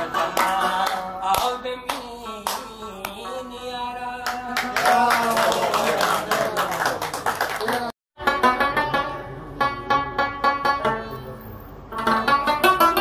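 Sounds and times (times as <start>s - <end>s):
people clapping along: 0.0s - 3.2s, 4.2s - 8.0s
person singing: 0.0s - 6.4s
plucked rabab: 8.2s - 13.0s.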